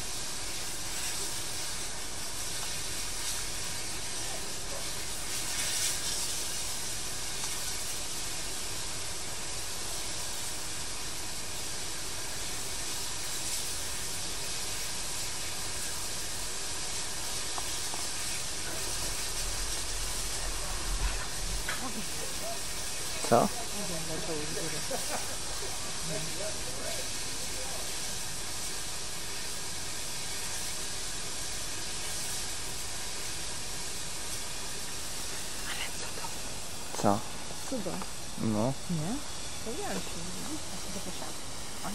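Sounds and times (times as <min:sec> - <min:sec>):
steam locomotive hissing: 0:00.0 - 0:41.9.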